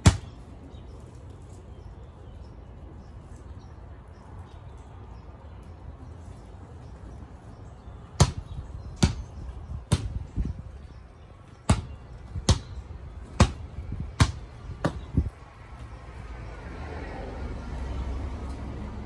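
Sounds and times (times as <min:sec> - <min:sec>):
basketball bouncing on concrete: 0:00.0 - 0:00.4, 0:08.1 - 0:10.6, 0:11.6 - 0:15.3.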